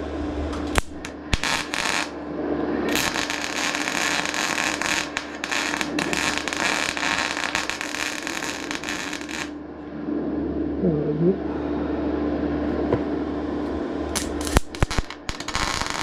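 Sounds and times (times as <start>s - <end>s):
welder arc crackling: 0.6s - 2.2s, 2.8s - 9.6s, 14.2s - 16.0s.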